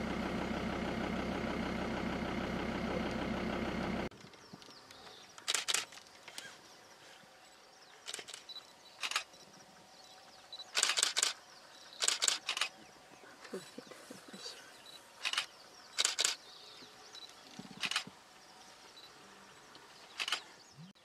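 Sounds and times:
camera shutter clicks: 5.4 - 6.0, 8.1 - 9.3, 10.8 - 11.4, 12.0 - 12.7, 15.2 - 16.4, 17.8 - 18.1, 20.2 - 20.4.

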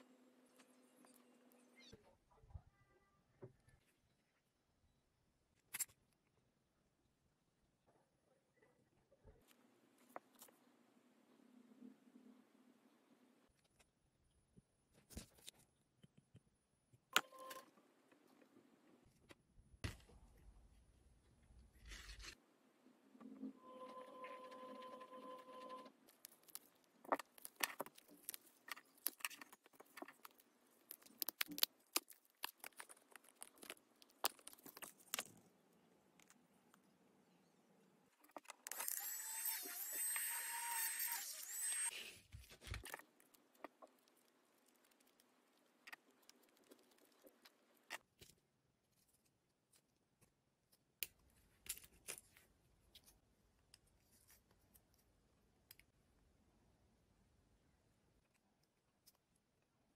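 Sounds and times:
electric hand drill whining: 38.7 - 41.9.

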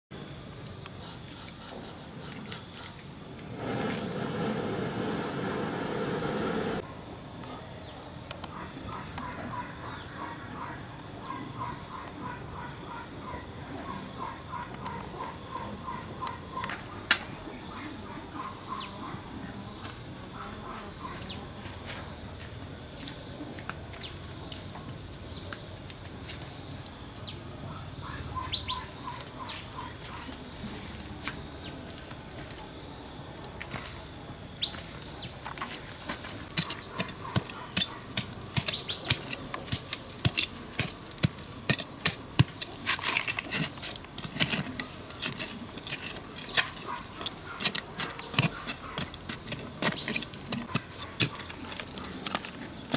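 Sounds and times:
high insect drone: 0.1 - 52.9
bird chirps: 0.2 - 6.8, 28.0 - 30.0
digging into dry soil: 36.4 - 52.9.

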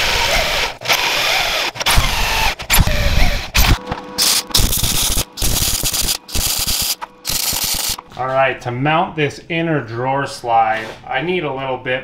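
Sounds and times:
power drill boring through steel: 0.0 - 8.0
welder crackling: 1.2 - 8.0.

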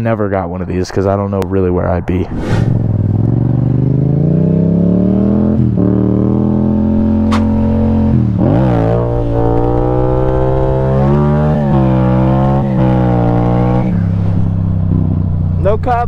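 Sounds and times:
motorcycle engine accelerating: 2.4 - 16.0.

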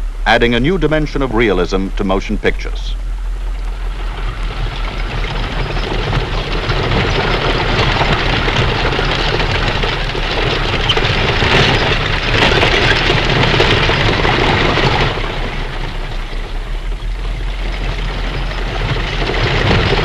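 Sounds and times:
horse hooves and wagon wheels rumbling: 0.0 - 20.0
steady very low hum: 0.0 - 20.0.

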